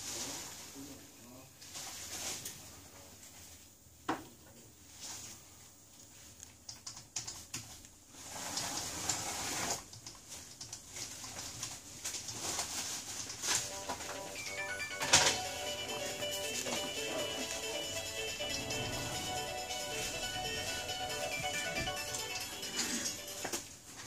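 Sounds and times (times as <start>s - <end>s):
music: 13.6s - 23.7s.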